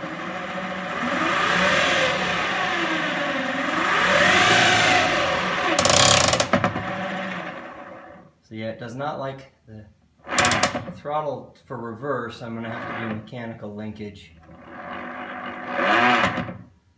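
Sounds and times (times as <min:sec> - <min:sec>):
electric motor whine: 0:00.0 - 0:08.3, 0:14.5 - 0:16.6
harsh clattering burst: 0:02.1 - 0:08.2, 0:10.2 - 0:10.9.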